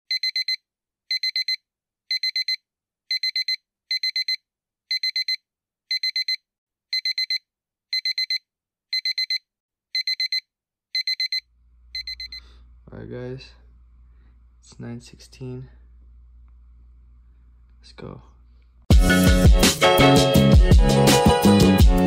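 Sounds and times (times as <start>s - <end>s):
digital alarm clock beeping: 0.1s - 12.5s.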